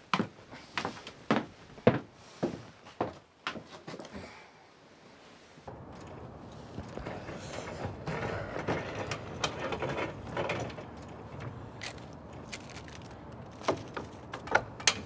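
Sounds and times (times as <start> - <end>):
sharp clicks and knocks: 5.7 - 15.0
wheeled cart rattling: 5.7 - 15.0.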